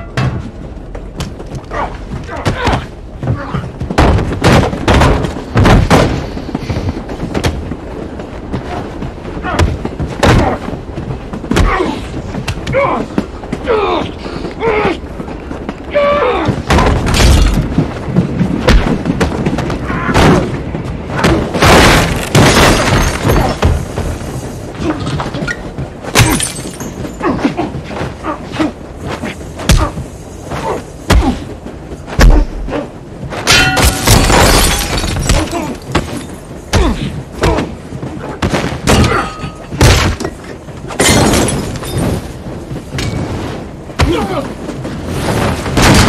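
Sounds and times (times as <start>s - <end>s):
glass and furniture shattering: 26.2s - 27.1s, 33.5s - 36.4s, 41.0s - 42.2s.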